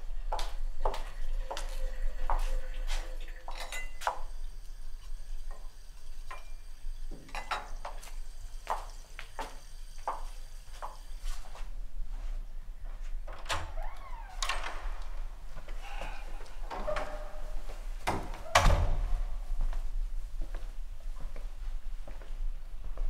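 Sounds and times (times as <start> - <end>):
glassware clinking on benchtop: 3.5 - 4.2, 7.2 - 7.8.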